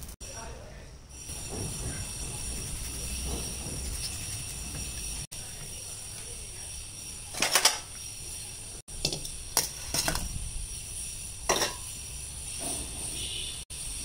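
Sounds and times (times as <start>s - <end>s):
steel plate and bowl clinking: 11.4s - 12.2s.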